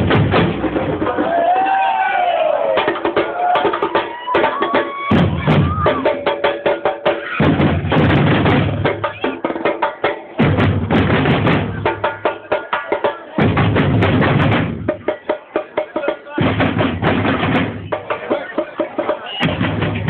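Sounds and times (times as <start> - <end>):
bass drum: 0.0 - 1.7, 2.7 - 12.5, 13.4 - 15.4, 16.4 - 20.0
fast drumming: 0.0 - 20.0.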